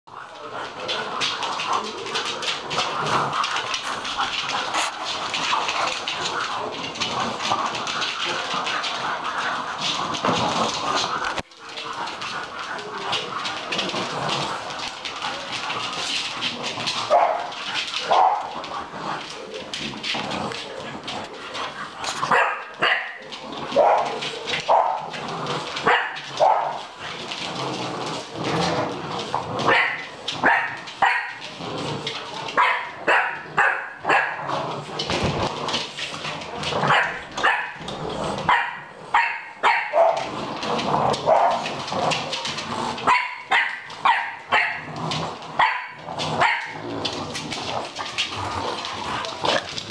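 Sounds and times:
puppies barking: 16.8s - 18.9s, 21.6s - 27.0s, 29.6s - 31.6s, 32.5s - 34.5s, 36.7s - 44.9s, 45.6s - 47.2s.

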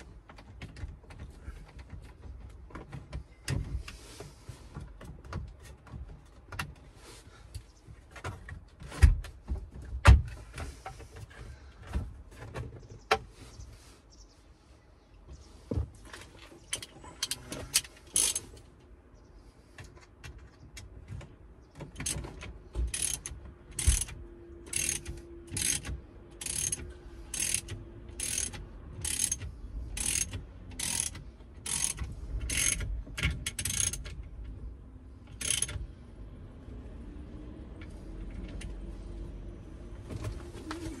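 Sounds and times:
socket ratchet clicking: 17.8s - 18.5s, 22.0s - 34.2s, 35.3s - 35.8s.

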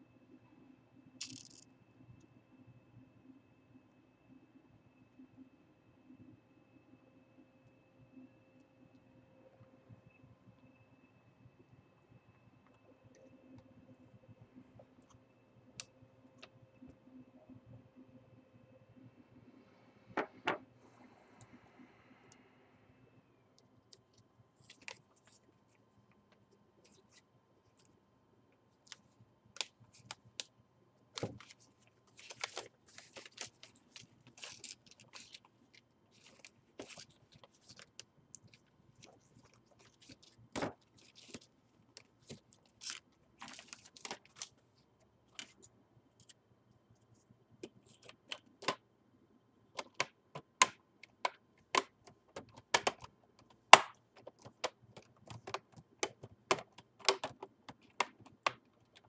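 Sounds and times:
plastic film crinkling: 31.2s - 44.5s
small clicks and taps: 49.8s - 59.0s.

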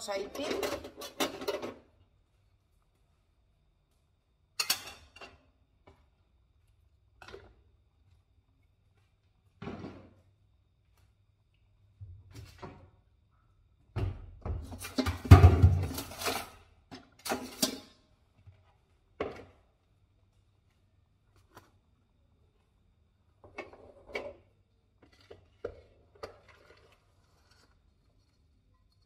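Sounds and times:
kitchen clatter and knocks: 0.2s - 1.9s, 4.6s - 5.5s, 13.9s - 18.1s.

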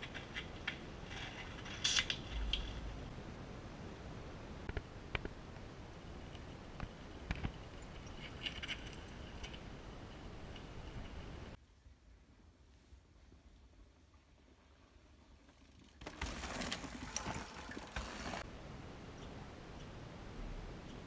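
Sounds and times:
bike ratcheting and rattling: 15.5s - 18.4s.

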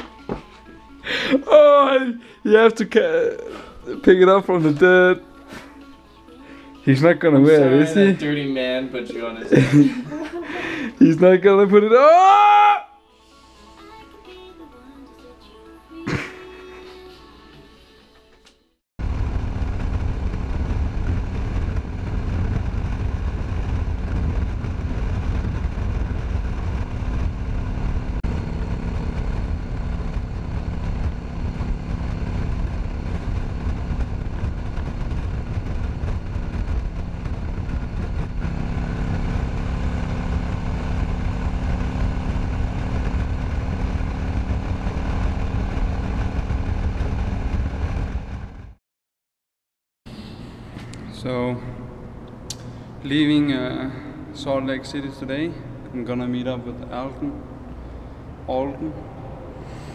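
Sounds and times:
motorcycle engine running: 19.0s - 48.8s
wind rushing over microphone: 19.0s - 48.8s.

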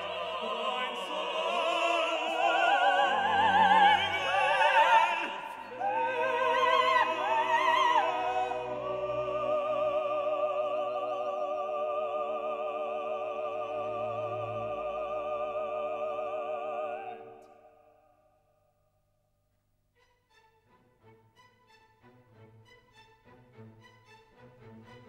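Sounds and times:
operatic singing: 0.0s - 18.0s.

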